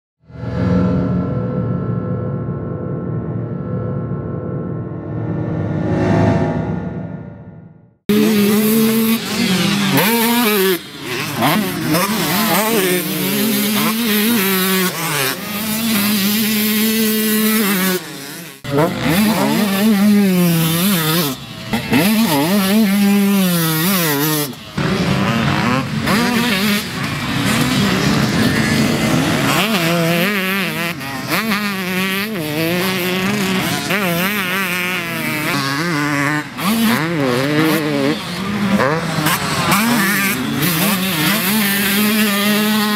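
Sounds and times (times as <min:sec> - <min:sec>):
motocross bike engine revving: 0:08.1 - 0:42.9.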